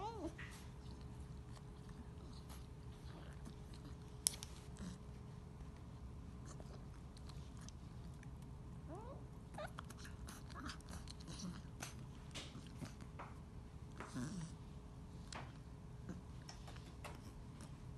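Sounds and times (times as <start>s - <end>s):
puppy licking and chewing: 0.2s - 8.7s, 9.6s - 14.2s.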